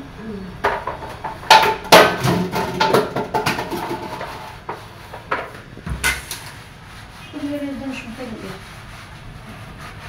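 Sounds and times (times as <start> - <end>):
dishes and utensils clattering: 0.6 - 6.6.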